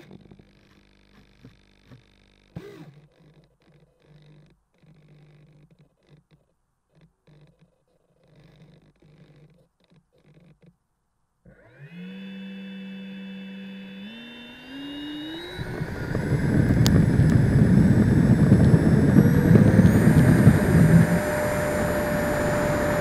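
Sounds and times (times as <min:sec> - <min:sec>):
model jet fan whine: 0:11.5 - 0:23.0.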